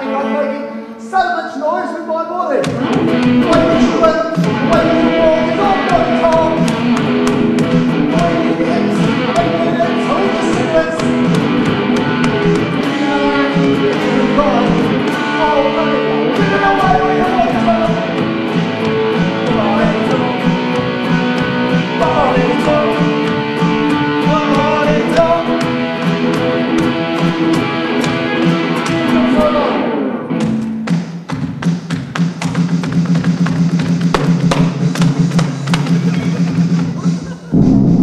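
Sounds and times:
electronic drum beat: 2.7 - 29.1, 30.4 - 38.0
electric guitar: 2.7 - 30.9.

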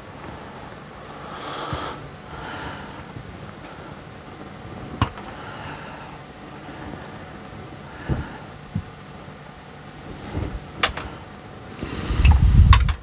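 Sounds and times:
breath out through nose: 1.2 - 3.1, 11.7 - 12.8
wire cutters snipping wire: 10.8 - 11.1.

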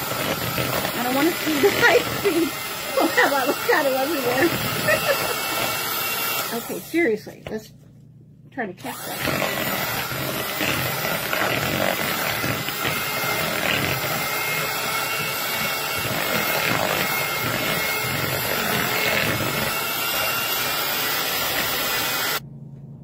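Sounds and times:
electric hand mixer running: 0.0 - 7.1, 8.8 - 22.4.

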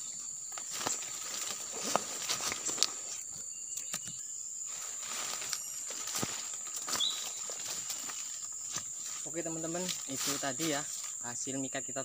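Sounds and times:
insects droning: 0.0 - 12.0
footsteps in leaf litter: 0.5 - 3.2, 4.7 - 11.2.

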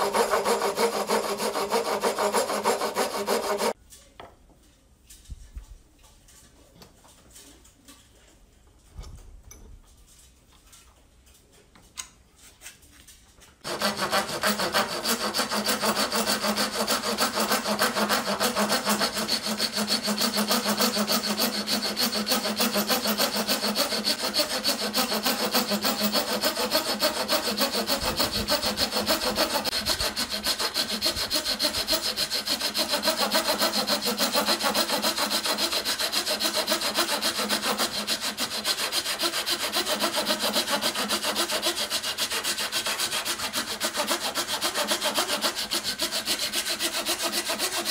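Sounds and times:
handsaw cutting wood: 0.0 - 3.8, 13.6 - 47.9.

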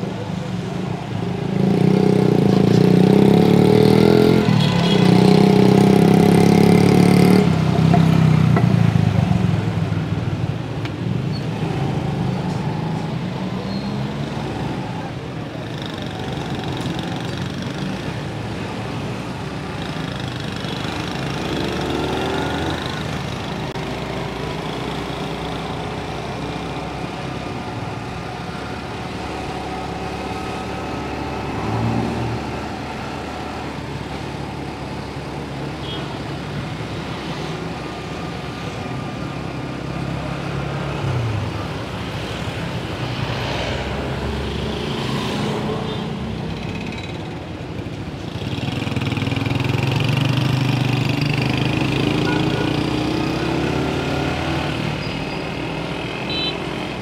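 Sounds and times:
surrounding traffic noise: 0.0 - 57.0.

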